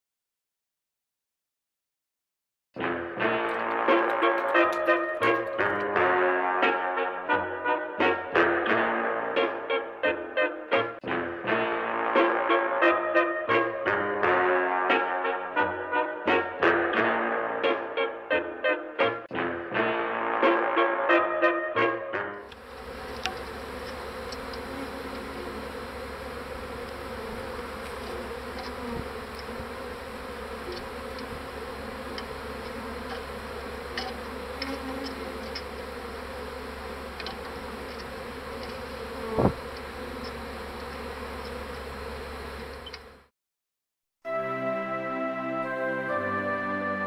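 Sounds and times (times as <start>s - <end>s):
brass music: 2.8s - 35.6s, 44.3s - 47.0s
honeybees buzzing: 3.2s - 6.9s, 22.4s - 43.3s.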